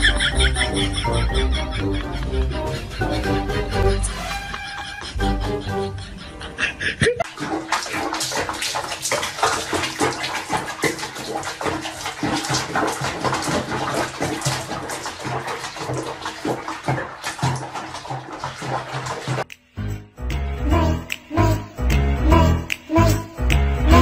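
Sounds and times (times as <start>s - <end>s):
water splashing in basin: 7.2s - 19.5s.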